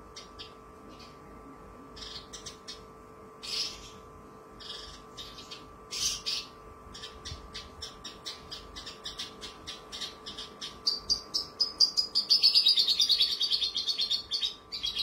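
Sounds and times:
lark singing: 4.6 - 15.0.

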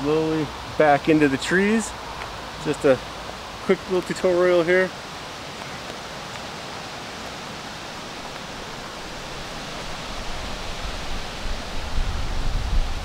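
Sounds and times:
steady rushing outdoor noise: 0.0 - 13.0
wind rumble on microphone: 8.0 - 13.0.

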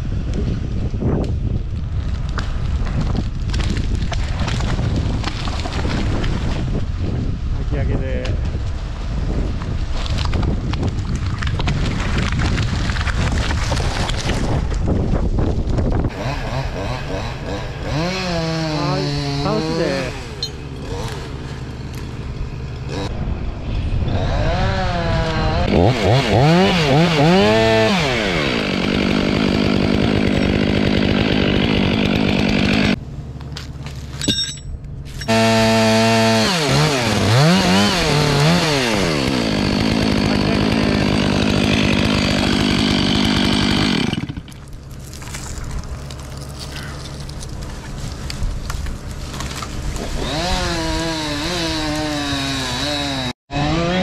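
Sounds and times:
chainsaw revving: 16.1 - 23.1, 24.1 - 33.0, 35.2 - 44.7, 49.8 - 54.0.

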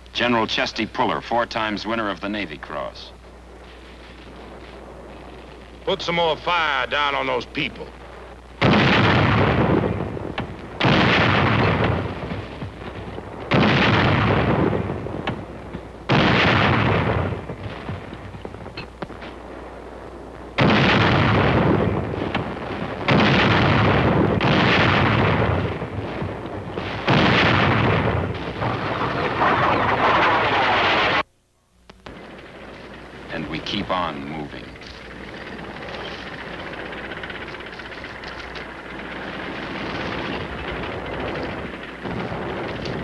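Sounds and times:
artillery blasts: 8.6 - 31.3, 32.1 - 43.0.

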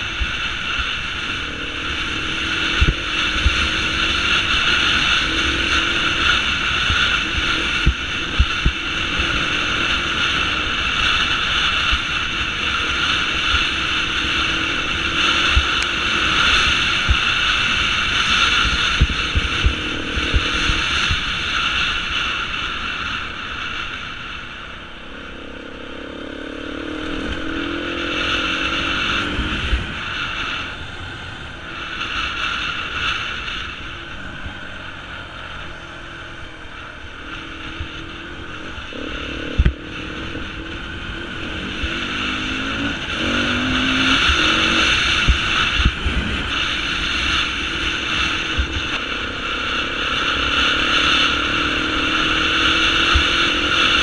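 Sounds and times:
motorcycle engine revving: 0.0 - 54.0
wind buffeting microphone: 26.8 - 49.0.

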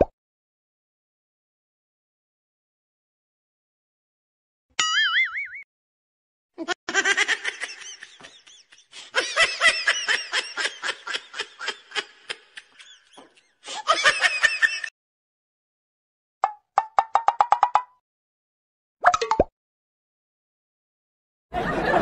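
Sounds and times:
rhythmic laughter: 6.6 - 14.9.

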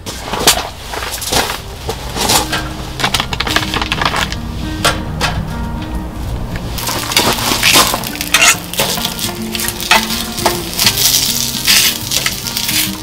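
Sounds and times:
metal utensil scraping a pan: 6.8 - 13.0.

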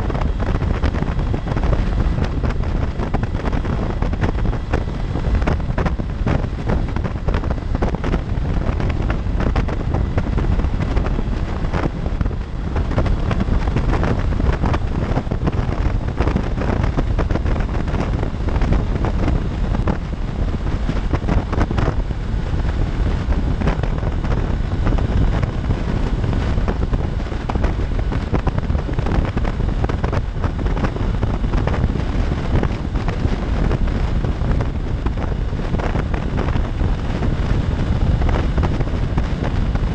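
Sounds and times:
road and engine noise: 0.0 - 39.9
wind buffeting microphone: 0.0 - 39.9.

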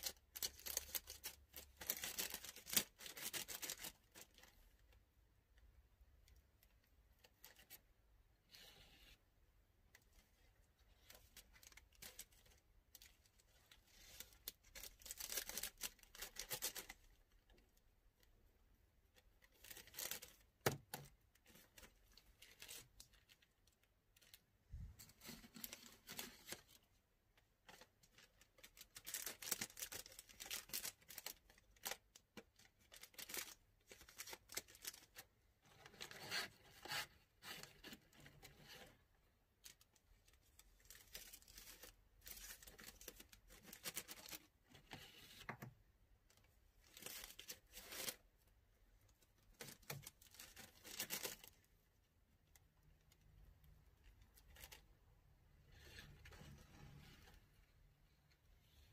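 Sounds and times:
plastic bag crinkling: 27.7 - 35.2.

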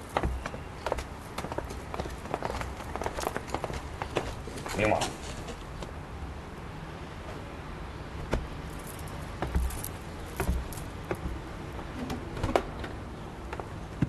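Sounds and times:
footsteps on hard ground: 0.0 - 5.9, 8.3 - 11.9
light knocks and clinks: 8.7 - 11.4.

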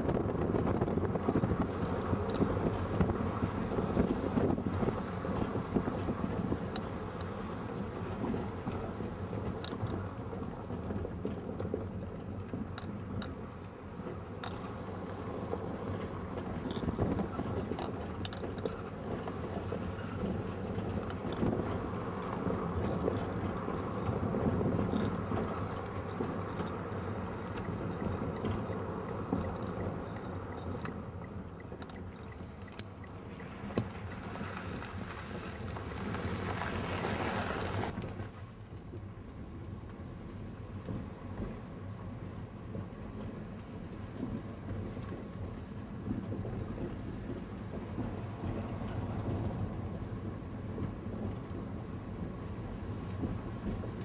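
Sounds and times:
car engine and road noise: 0.0 - 54.0
light clicks and rattles: 8.1 - 37.0.

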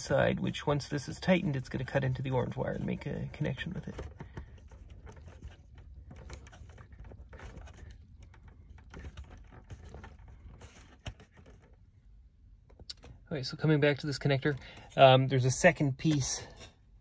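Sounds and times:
small plastic clicks and rustles: 3.6 - 11.9.

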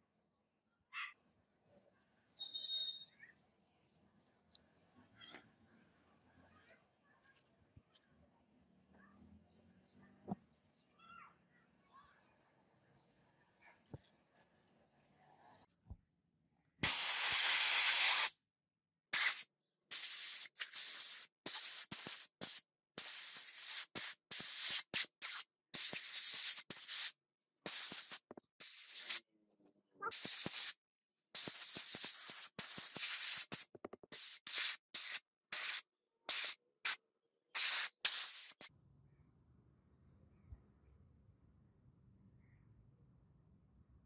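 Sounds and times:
sprayer hissing: 16.8 - 18.3, 19.2 - 29.2, 30.1 - 30.8, 31.4 - 37.0, 37.6 - 38.7.

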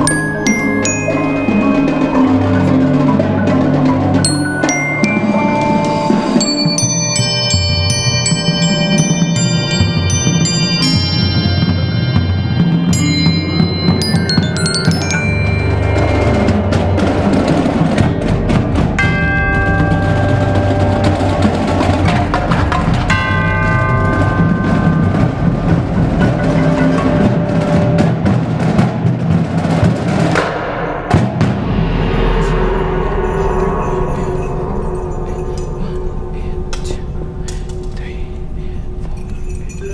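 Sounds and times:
xylophone mallet strokes: 0.0 - 18.0
tubular chimes ringing: 0.0 - 28.8, 31.9 - 39.9
drums: 0.0 - 39.9.

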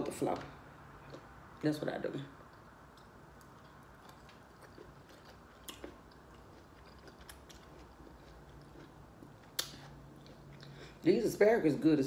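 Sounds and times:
chewing asparagus: 2.4 - 11.1.

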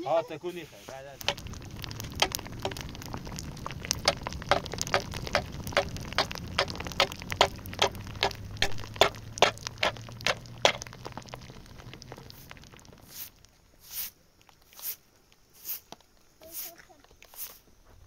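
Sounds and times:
low rumble of flames: 0.0 - 18.0
wood fire crackling: 0.0 - 18.0
sharp pops: 0.9 - 15.0.

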